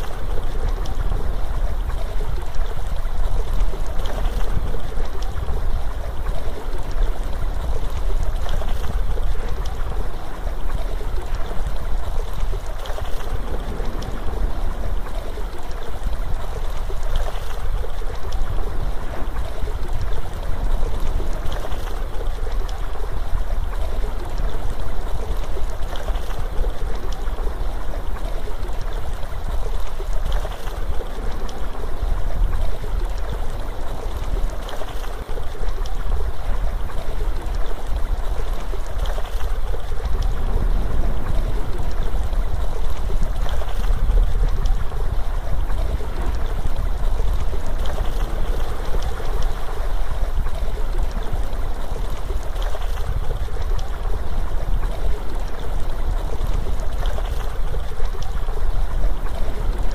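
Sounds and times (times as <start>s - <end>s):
flowing water rushing: 0.0s - 59.9s
low rumble: 13.3s - 16.6s.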